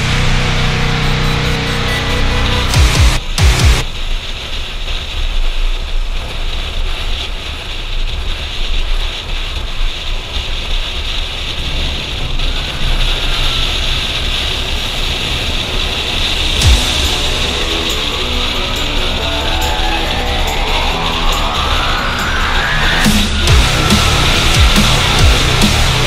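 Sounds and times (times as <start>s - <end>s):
background music: 0.0s - 3.8s, 16.6s - 26.0s
motorcycle engine and road rumble: 0.0s - 26.0s
wind rushing over microphone: 3.2s - 26.0s.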